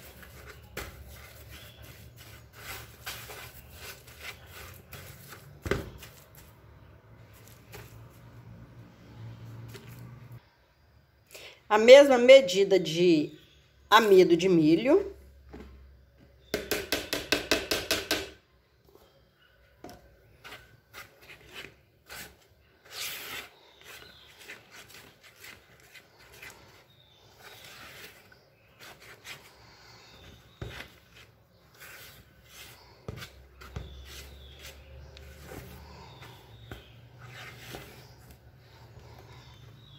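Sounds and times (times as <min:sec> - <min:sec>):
spatula scraping a pan: 0:00.0 - 0:06.2, 0:20.4 - 0:39.7.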